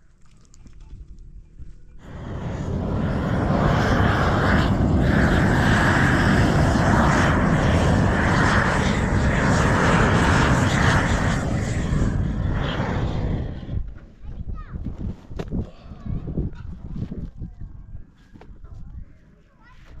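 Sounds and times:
gas torch flame burning: 2.0 - 14.0.

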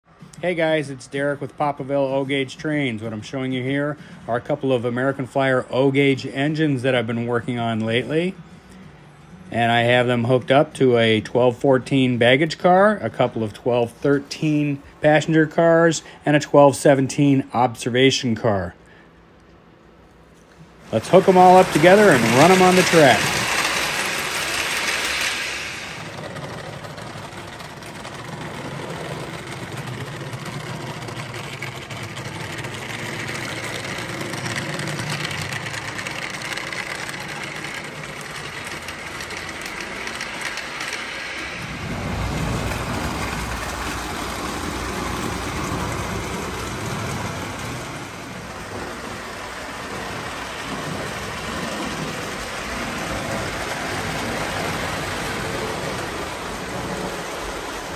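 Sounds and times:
metal wheels rattling on rails: 20.8 - 57.9
toy train motors whirring: 20.9 - 57.9.

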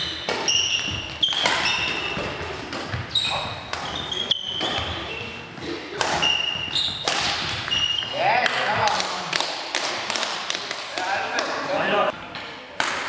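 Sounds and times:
shoes squeaking on floor: 0.0 - 8.4
rackets striking shuttlecock: 0.1 - 3.0, 6.0 - 8.6.

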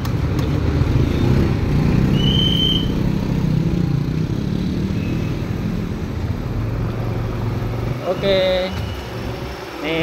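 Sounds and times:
street traffic: 0.0 - 10.0
high whistle: 2.0 - 3.0.

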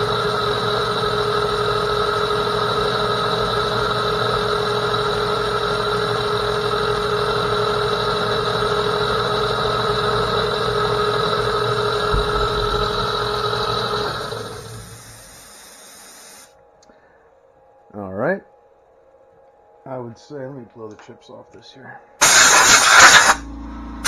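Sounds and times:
metal lathe with gear whine: 0.0 - 16.4.

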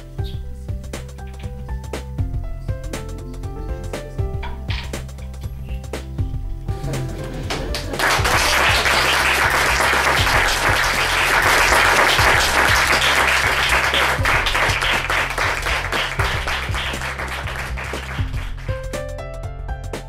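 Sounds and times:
music with low bass: 0.0 - 20.0
audience applauding: 7.3 - 18.8.

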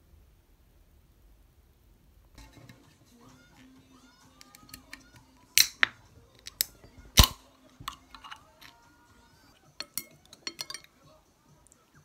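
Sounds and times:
soft background music: 2.4 - 12.0
chopsticks and spoon clicking bowl: 4.4 - 8.8, 9.8 - 10.9.

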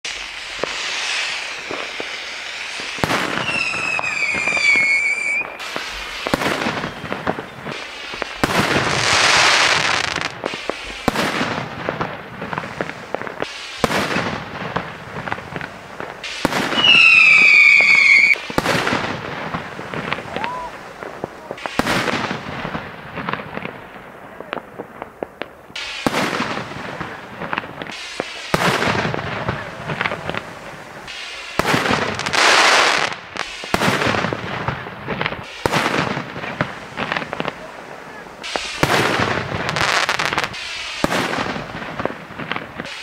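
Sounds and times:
falling firework whistles: 0.0 - 11.7, 16.0 - 20.8, 31.0 - 37.5, 38.1 - 43.0
firework bangs: 0.0 - 43.0
hissing crackle: 0.0 - 43.0.

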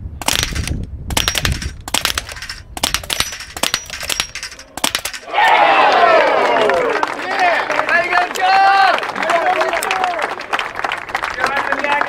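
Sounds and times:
air rifle shots: 0.2 - 5.3
steel plates pinging and clanging: 2.2 - 5.3.

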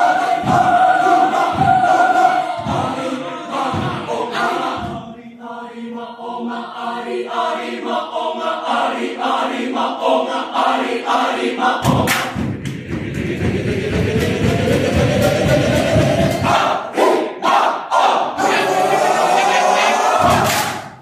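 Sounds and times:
mixed choir singing: 0.0 - 21.0
sharp claps: 11.8 - 12.9, 20.3 - 21.0
shouted voices: 16.5 - 20.7.

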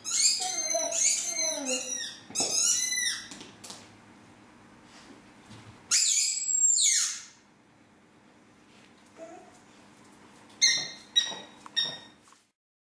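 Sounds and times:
rubber squeaky toy squeak: 0.0 - 3.3, 5.9 - 7.3, 10.6 - 12.1.

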